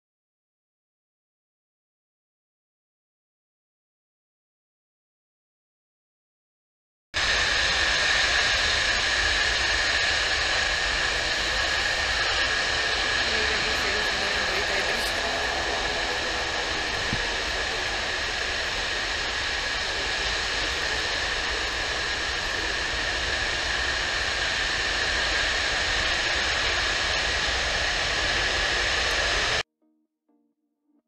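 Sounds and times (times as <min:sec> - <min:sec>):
jet engine roar with whine: 0:07.2 - 0:29.6.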